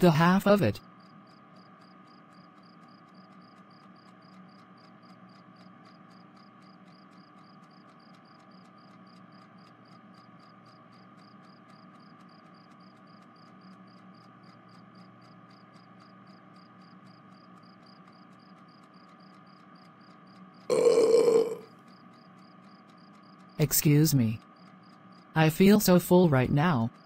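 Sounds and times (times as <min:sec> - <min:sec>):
cricket chirping: 0:01.0 - 0:25.5
loud burp: 0:20.7 - 0:21.7.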